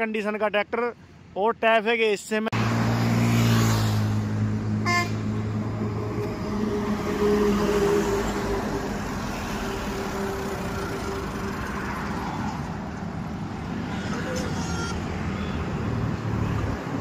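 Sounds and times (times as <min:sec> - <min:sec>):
road traffic noise: 0:00.0 - 0:17.0
tractor diesel engine running: 0:05.0 - 0:12.9.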